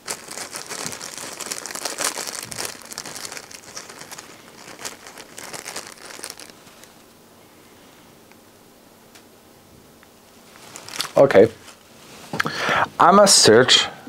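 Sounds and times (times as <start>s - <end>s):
plastic bag crinkling: 0.0s - 7.1s, 10.4s - 11.8s.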